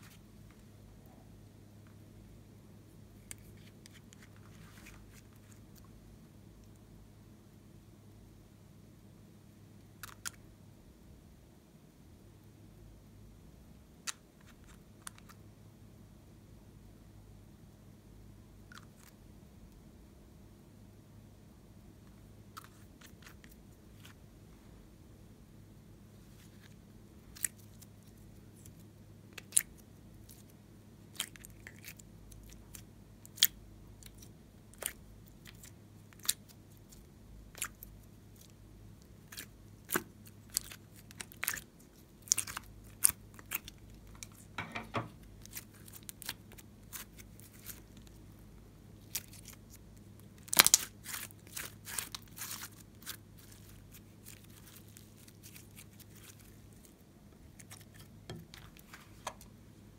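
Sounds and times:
sticky slime clicks and crackles: 50.4 - 56.4.

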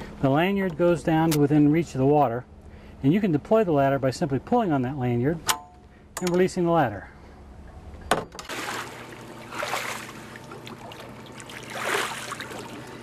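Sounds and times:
water splashing and sloshing: 8.4 - 13.0.

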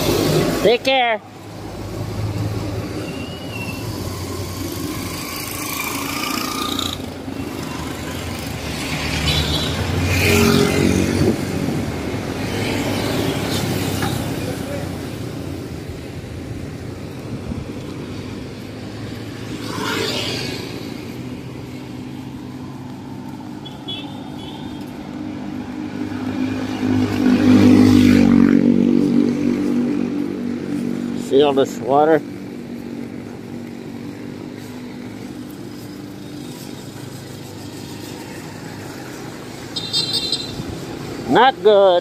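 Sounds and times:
passing vehicle tyre noise: 0.0 - 42.0
street noise: 0.0 - 42.0
vehicle engine hum: 0.0 - 42.0.

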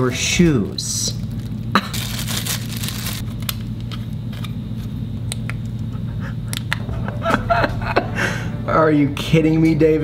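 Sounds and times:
steady low hum: 0.0 - 10.0
plastic bags crinkling: 0.6 - 3.5.

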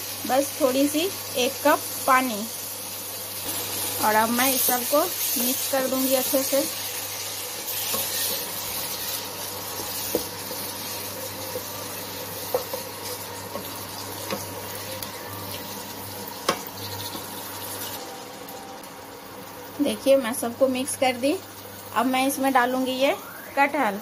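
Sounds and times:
sauce sizzling in a pan: 0.0 - 24.0
spatula stirring: 5.2 - 14.4.

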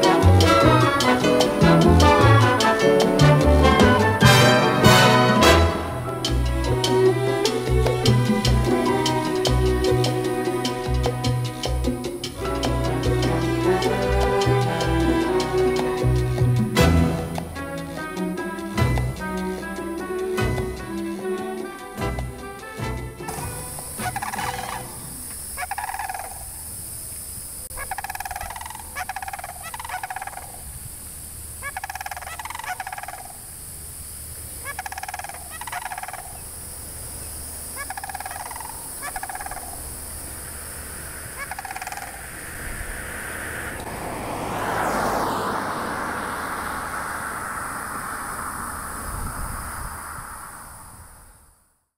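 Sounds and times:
rushing noise: 0.0 - 27.9, 36.2 - 51.9
cranes trumpeting calls: 23.3 - 26.7, 27.7 - 30.8, 31.6 - 33.4, 34.5 - 36.6, 37.2 - 48.4.

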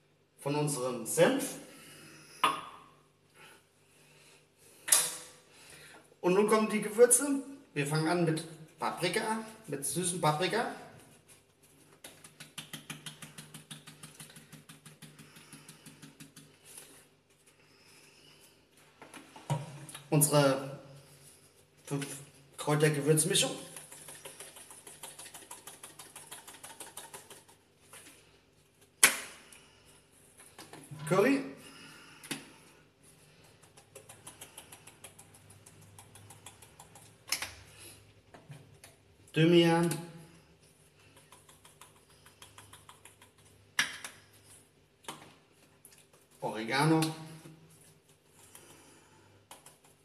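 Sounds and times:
spice shaker rattling: 11.7 - 17.0, 23.2 - 28.0, 33.3 - 37.7, 40.9 - 44.6
spice tapping into glass bowl: 12.0 - 16.6, 23.7 - 27.6.

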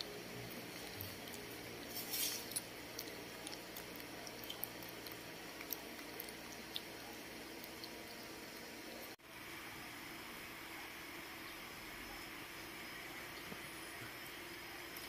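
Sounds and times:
monkeys lapping and slurping: 0.5 - 8.2.

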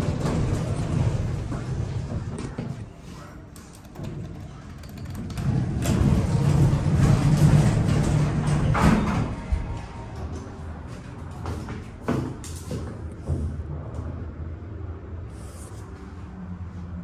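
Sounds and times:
elevator machinery humming: 3.6 - 12.1.

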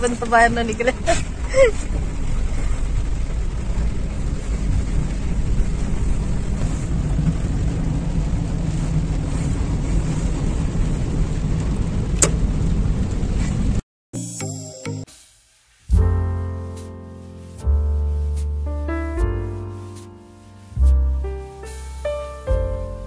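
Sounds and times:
car driving on wet road: 0.0 - 13.8, 17.3 - 23.0
hiss of tyre spray: 15.0 - 18.7, 19.6 - 23.0.

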